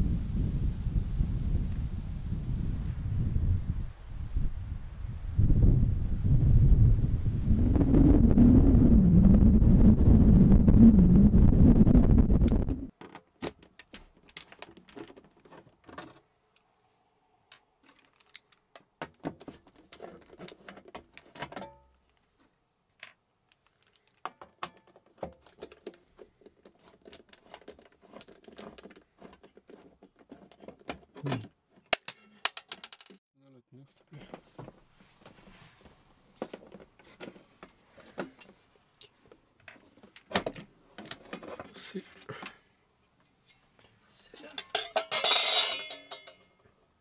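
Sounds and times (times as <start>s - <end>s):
wind buffeting microphone: 0.0s - 12.9s.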